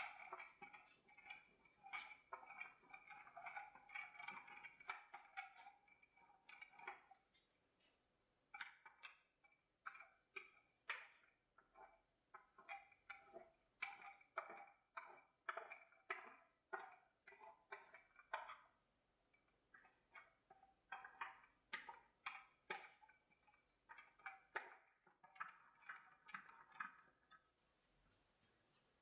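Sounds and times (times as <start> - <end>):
paintbrush ticks and scrapes: 0.0 - 29.0.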